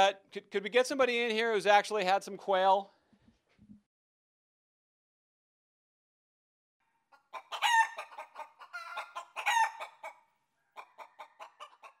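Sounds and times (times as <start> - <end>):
chicken clucking: 7.1 - 12.0
chicken squawk: 7.1 - 12.0.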